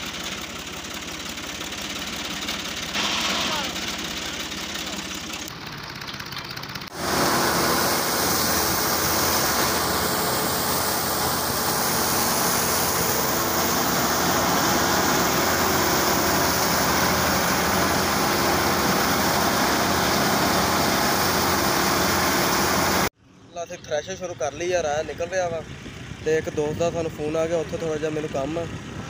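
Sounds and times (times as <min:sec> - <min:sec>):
thresher running: 0:00.0 - 0:23.1
tractor engine hum: 0:00.0 - 0:29.0.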